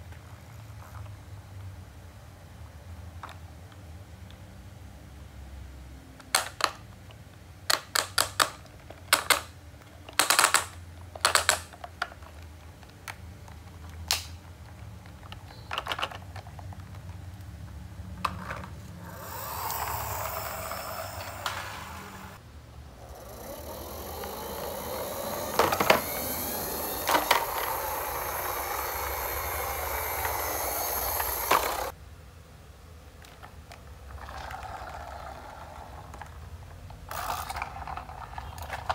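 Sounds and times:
plastic toy trucks clicking: 0:06.2 - 0:17.5, 0:18.2 - 0:22.4, 0:23.0 - 0:32.0, 0:33.2 - 0:38.9
plastic wheels rolling on hard floor: 0:08.0 - 0:22.4, 0:23.1 - 0:32.0, 0:33.2 - 0:38.9.

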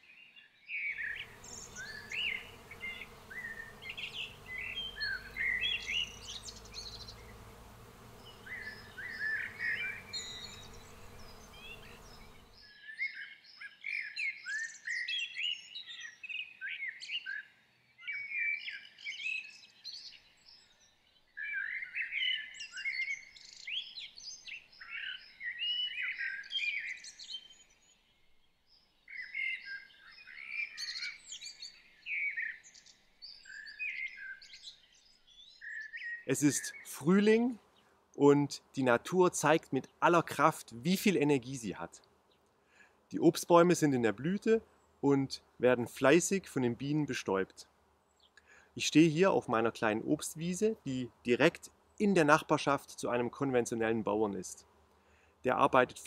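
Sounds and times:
songbirds singing: 0:00.0 - 0:56.0
background hiss and hum: 0:01.2 - 0:12.6.

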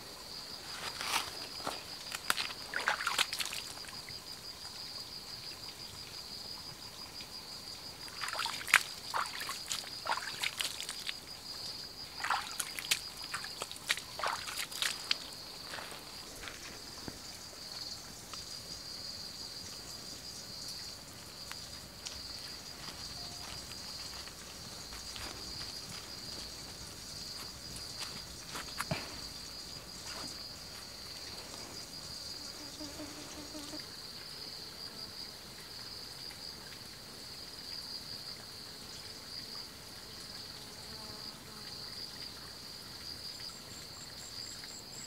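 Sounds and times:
water splashing and sloshing: 0:00.6 - 0:04.8, 0:07.9 - 0:18.3, 0:19.8 - 0:32.5.

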